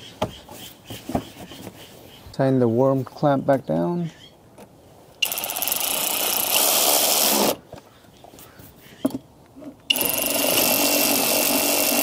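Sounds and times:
electric ratchet motor running: 5.2 - 7.6, 9.9 - 12.0.

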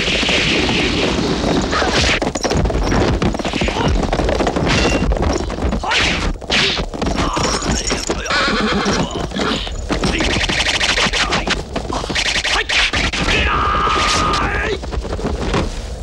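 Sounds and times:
galloping hoofbeats: 0.0 - 16.0
horse neighing: 7.2 - 10.4.

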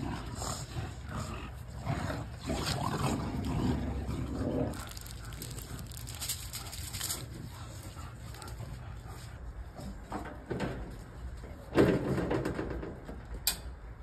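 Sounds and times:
aluminium foil crinkling: 4.6 - 8.7.

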